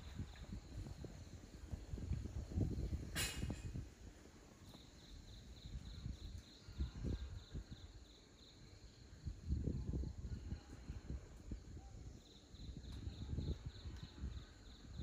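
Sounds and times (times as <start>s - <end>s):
insect chirping: 0.0s - 3.8s, 4.6s - 10.7s, 11.5s - 15.0s.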